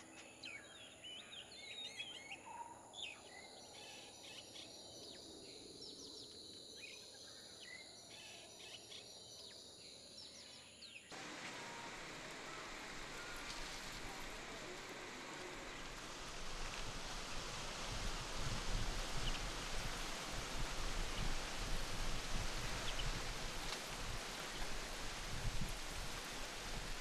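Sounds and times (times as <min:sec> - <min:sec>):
even hiss: 0:11.1 - 0:27.0.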